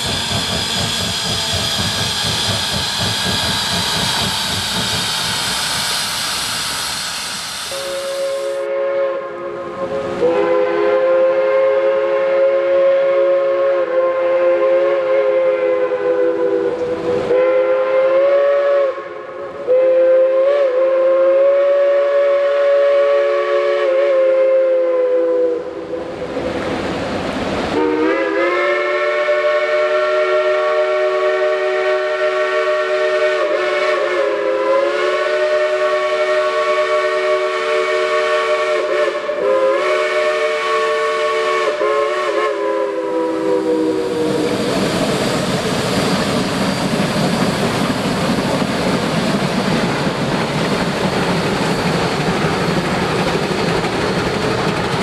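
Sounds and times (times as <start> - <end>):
steam hissing: 0.0 - 8.8, 26.8 - 55.0
chime steam whistle: 0.0 - 25.8, 27.8 - 47.4
steam locomotive exhaust beats: 0.0 - 55.0.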